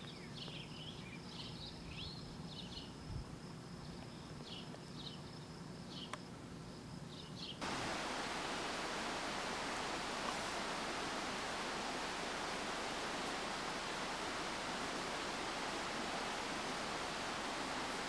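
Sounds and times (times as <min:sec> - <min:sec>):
steady hiss: 0:00.0 - 0:18.0
faint high whine: 0:07.6 - 0:18.0.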